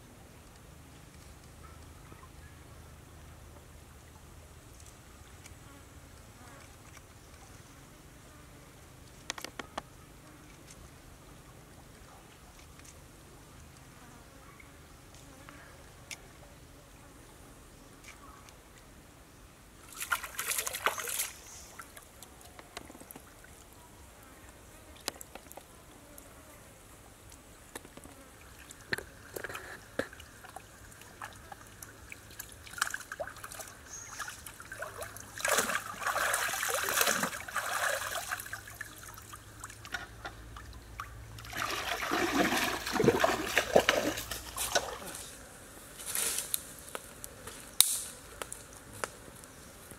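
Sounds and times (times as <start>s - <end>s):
stream water splashing: 19.8s - 22.2s, 28.4s - 45.3s
small water drips: 28.4s - 45.0s.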